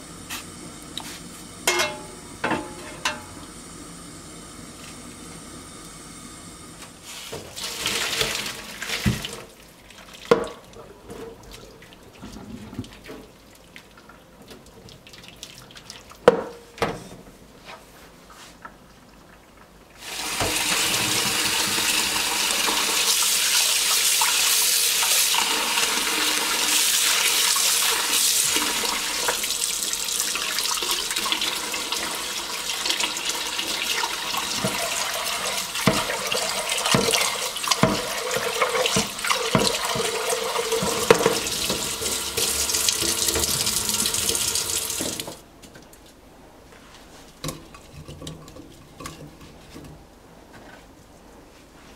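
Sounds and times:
meat being rubbed and washed: 7.0s - 10.3s
tap running into a metal pot: 20.4s - 20.7s, 35.8s - 36.2s, 36.8s - 43.8s.

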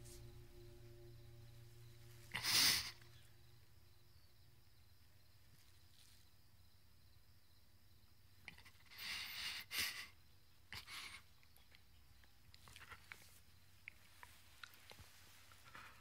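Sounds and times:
faint low music tones: 0.0s - 8.4s.

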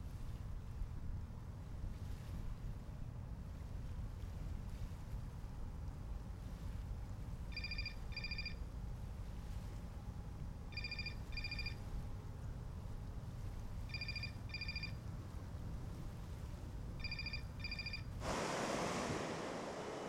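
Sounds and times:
low rumble of wind: 0.0s - 20.0s
telephone ringing: 10.8s - 11.8s, 13.9s - 15.0s, 17.0s - 18.0s.

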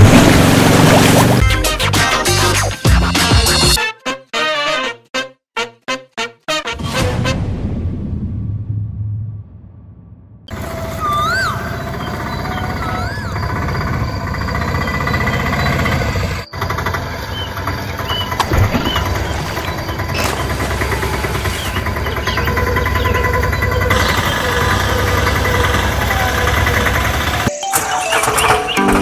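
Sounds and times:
auto-rickshaw engine puttering: 0.0s - 1.5s, 10.5s - 29.0s.

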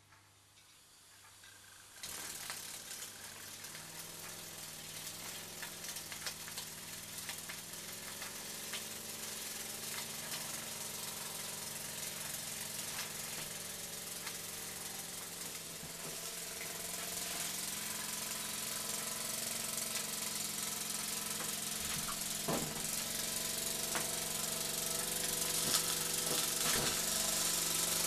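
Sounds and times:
steam hissing: 1.6s - 28.0s
toy steam engine chuffing: 16.4s - 28.0s.

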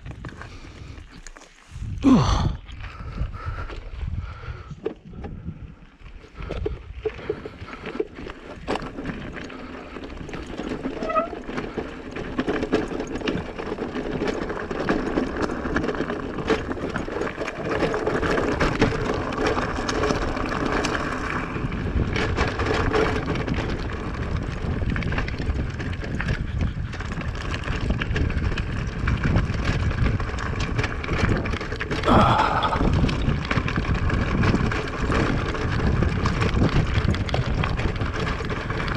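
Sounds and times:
bike tyre noise and rattle: 0.0s - 38.9s
wind on microphone: 1.7s - 7.8s, 20.6s - 38.9s.

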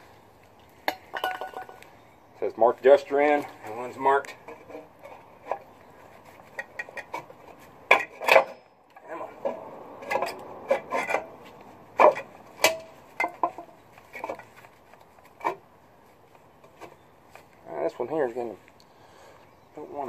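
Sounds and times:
metal parts scraping and rubbing: 9.3s - 11.3s.

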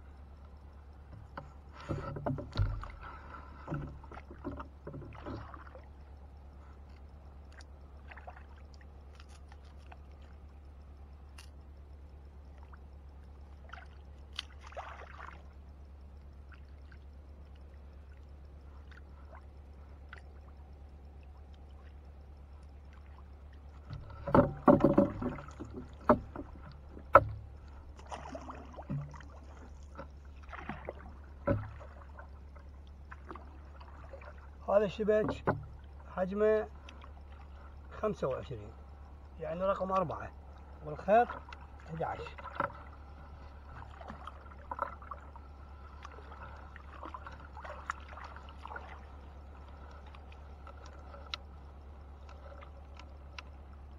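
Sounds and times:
quiet water and boat handling: 0.0s - 53.9s
wooden pole knocking and splashing: 1.1s - 5.9s, 23.8s - 32.3s, 35.0s - 36.0s, 41.1s - 43.0s, 46.0s - 49.2s.

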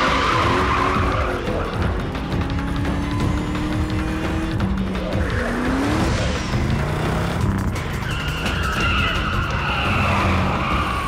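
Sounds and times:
car engines revving: 0.0s - 11.0s
dramatic music score: 0.0s - 11.0s
tyres squealing: 7.7s - 11.0s.

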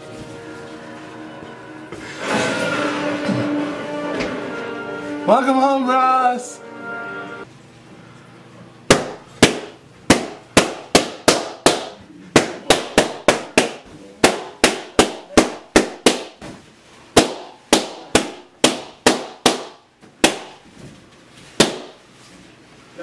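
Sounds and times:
balloons popping: 8.9s - 16.6s, 17.2s - 20.7s, 21.6s - 22.0s.

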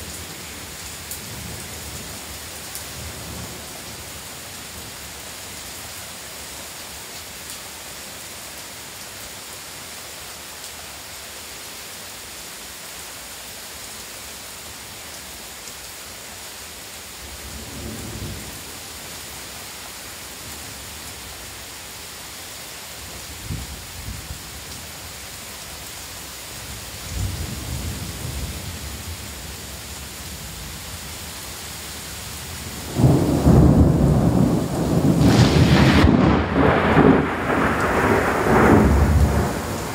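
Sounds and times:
heavy rain: 0.0s - 39.9s
thunder rumbling: 32.9s - 39.9s.

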